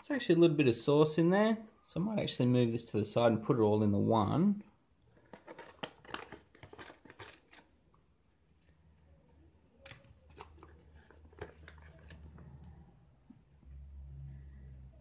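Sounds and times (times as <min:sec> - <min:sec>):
foil pouch crinkling: 0:05.1 - 0:07.8, 0:09.8 - 0:12.4
plastic spoon scraping: 0:05.1 - 0:07.9, 0:09.8 - 0:12.7.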